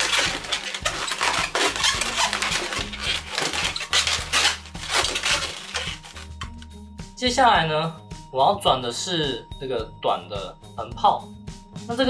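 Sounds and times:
balloons rubbing together: 0.0s - 6.7s
soft background music: 0.0s - 12.0s.

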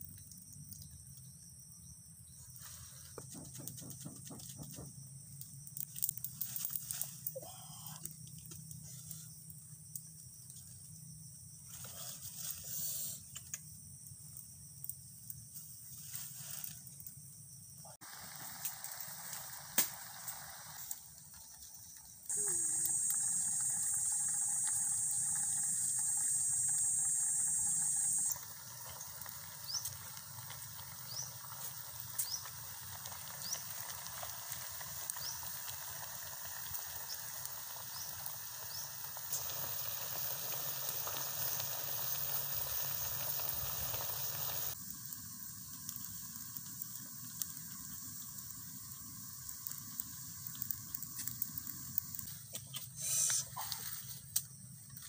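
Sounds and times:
crackling wood fire: 0.0s - 55.0s
loud high hiss: 18.0s - 21.0s, 37.9s - 45.6s.

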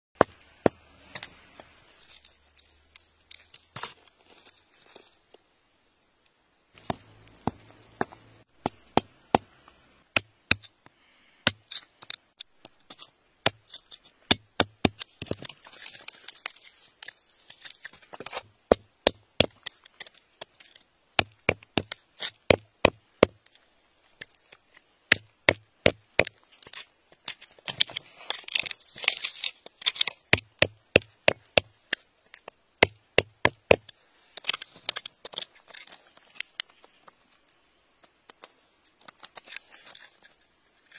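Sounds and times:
gritty scraping: 0.2s - 5.4s, 6.7s - 9.8s, 25.9s - 32.6s, 33.5s - 40.9s.

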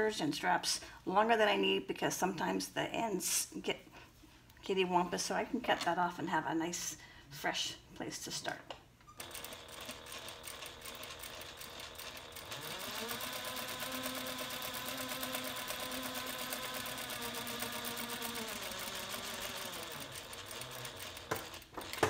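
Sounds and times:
sewing machine stitching: 9.2s - 22.0s.

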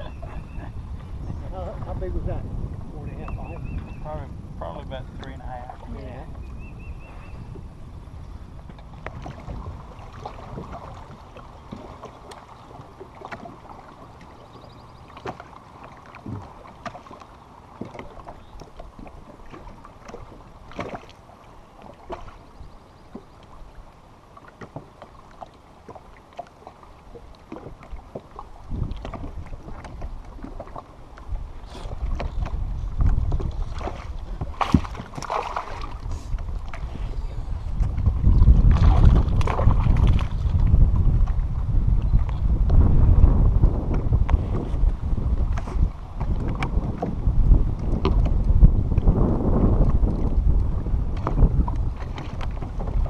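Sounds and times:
low rumble: 0.0s - 10.8s
water washing against hull: 0.0s - 53.0s.

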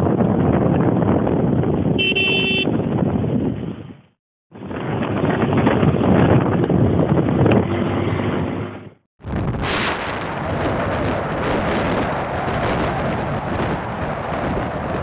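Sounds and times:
motorcycle road noise: 0.0s - 15.0s
wind on microphone: 0.0s - 15.0s.

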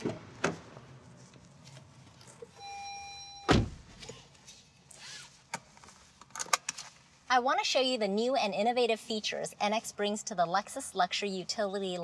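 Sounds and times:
short electronic beep: 2.6s - 3.5s
car door closing thump: 3.5s - 3.8s.

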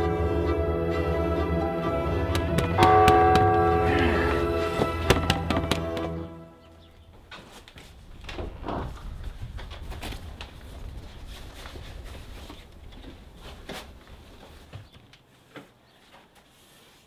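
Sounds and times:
cardboard box sliding: 4.4s - 5.1s.

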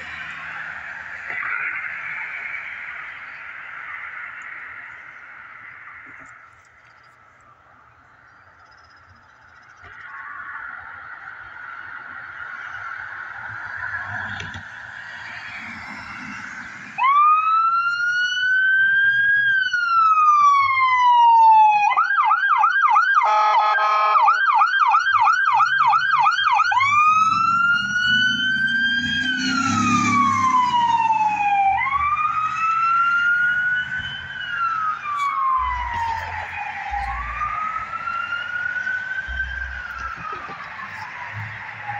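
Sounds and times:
siren wailing and yelping: 0.0s - 6.4s, 9.8s - 41.9s
truck engine rumbling: 0.0s - 10.2s, 25.7s - 41.9s.

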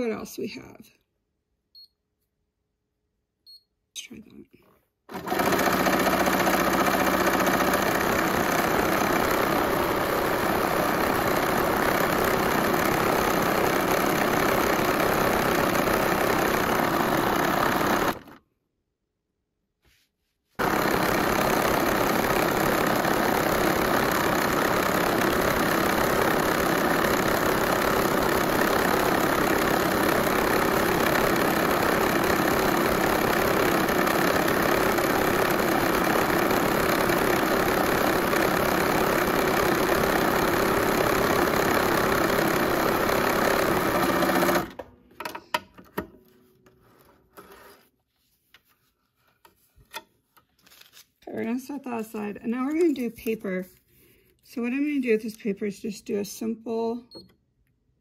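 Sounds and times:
sewing machine running: 5.1s - 18.4s, 20.6s - 44.9s.

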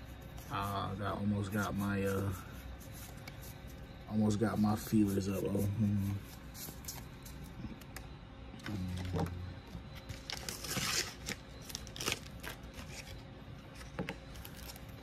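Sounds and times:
cards and packaging rustling: 4.7s - 15.0s.

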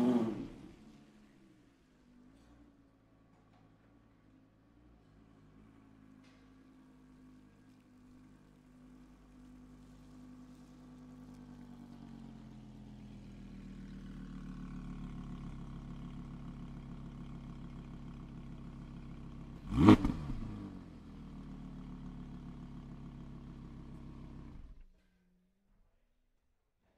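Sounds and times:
car engine idling: 5.1s - 24.9s.

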